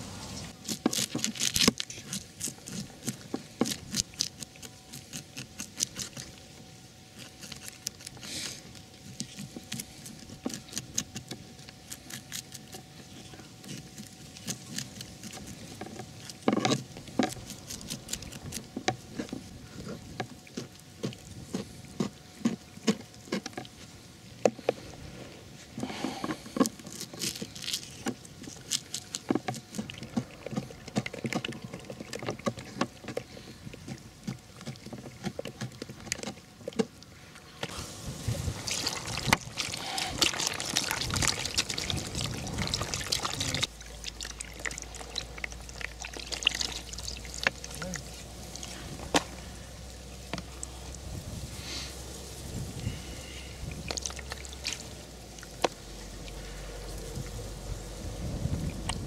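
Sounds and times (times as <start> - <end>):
fish frying in oil: 37.9 - 48.7.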